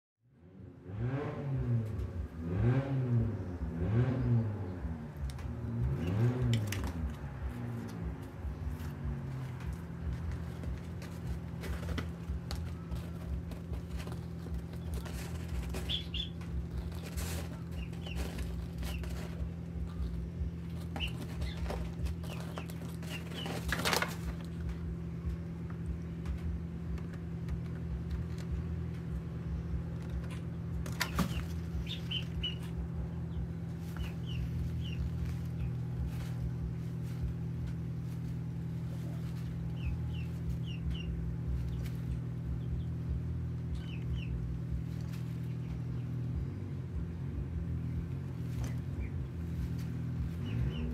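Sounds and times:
steady low hum: 0:03.1 - 0:50.9
hen moving about: 0:05.3 - 0:46.2, 0:48.2 - 0:50.9.

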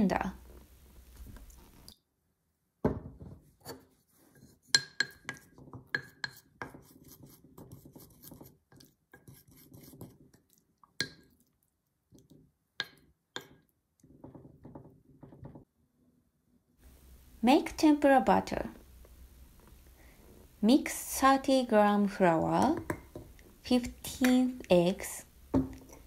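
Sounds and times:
spatula clinking against glass bowl: 0:04.8 - 0:06.4
soft wet scraping: 0:06.8 - 0:12.4.

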